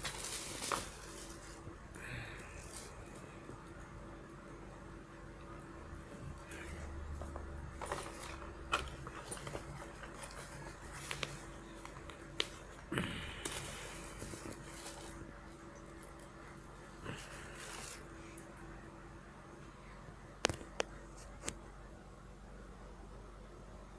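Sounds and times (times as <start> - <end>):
fabric bag rustling and scraping: 0.0 - 1.7, 6.5 - 12.8, 13.4 - 15.7.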